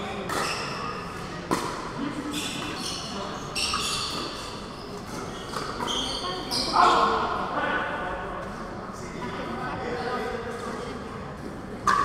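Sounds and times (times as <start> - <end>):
hum of large hall: 0.0 - 12.0
sneakers squeaking on court: 0.1 - 1.2, 2.3 - 7.3.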